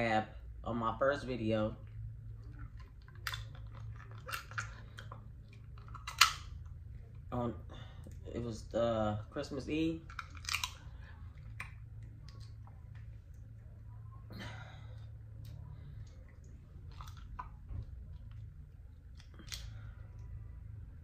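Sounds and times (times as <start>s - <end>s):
low steady hum: 0.0s - 21.0s
crab shell cracking: 3.0s - 5.2s, 5.8s - 6.5s, 10.1s - 12.6s, 19.1s - 19.8s.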